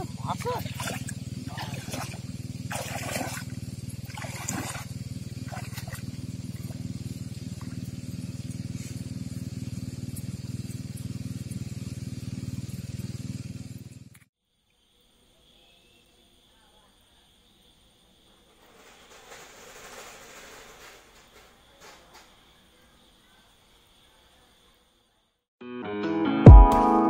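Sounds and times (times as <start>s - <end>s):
motor humming: 0.0s - 14.2s.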